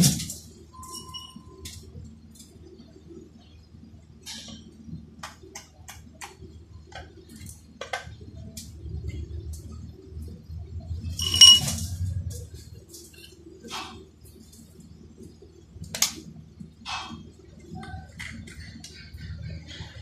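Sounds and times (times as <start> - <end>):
low steady hum: 0.0 - 20.0
metallic clicks and clinks: 11.1 - 12.0
loud ringing metal clank: 11.2 - 11.9.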